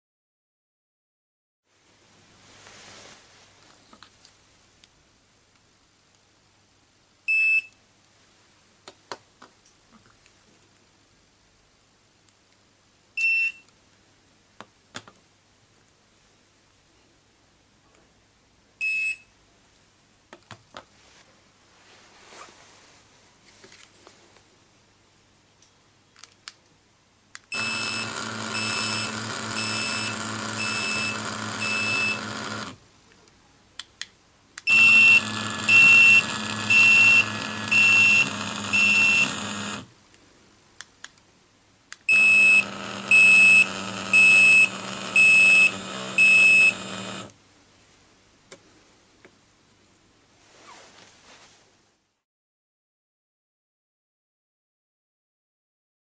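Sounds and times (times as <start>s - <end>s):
vibration motor buzzing: 27.5s - 32.8s, 34.7s - 39.9s, 42.1s - 47.3s
high electronic beeps: 27.6s - 32.3s, 34.7s - 39.4s.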